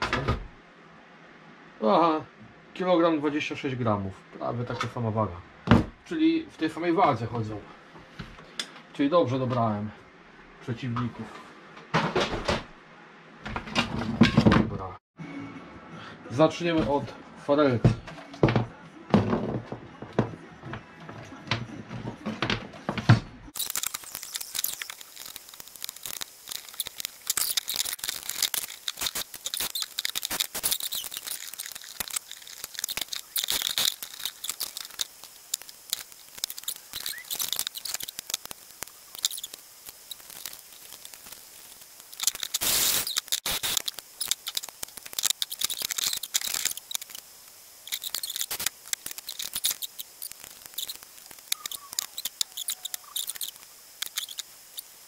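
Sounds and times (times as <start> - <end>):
rustling: 23.6 - 55.0.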